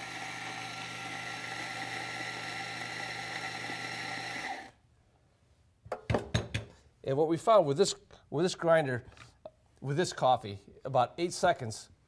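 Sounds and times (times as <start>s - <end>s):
electric coffee grinder grinding: 0.0s - 4.8s.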